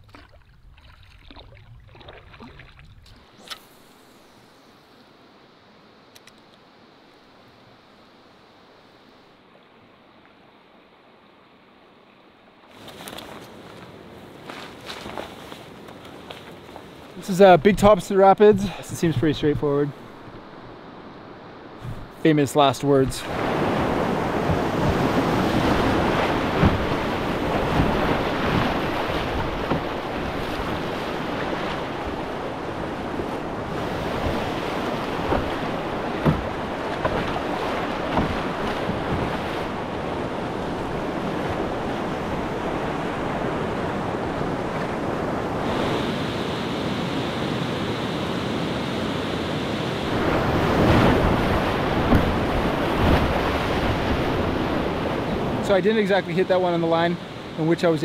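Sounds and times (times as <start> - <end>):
whitewater rapids rushing: 22.3 - 48.2, 50.0 - 58.0
sharp knocks on canoe: 24.4 - 32.2, 33.8 - 40.0, 51.0 - 54.2.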